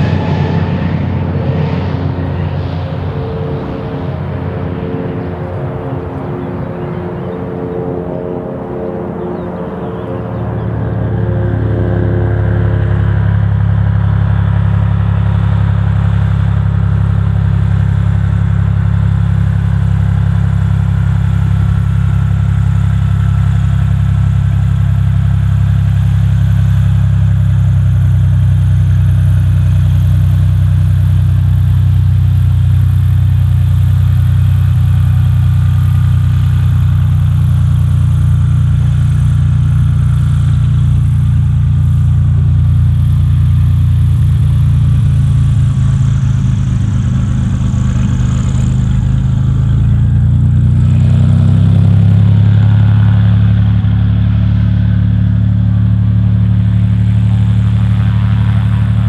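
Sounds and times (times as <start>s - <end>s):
aircraft piston engine running: 0.0s - 59.0s.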